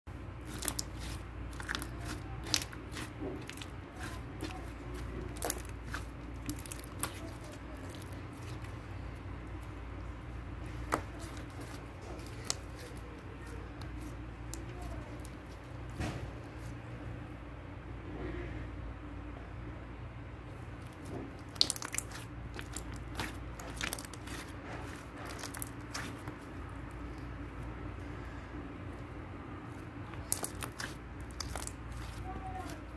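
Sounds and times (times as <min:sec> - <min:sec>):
slime crackling and popping: 0:00.4 - 0:08.7, 0:10.9 - 0:13.1, 0:21.4 - 0:26.5, 0:30.0 - 0:32.9.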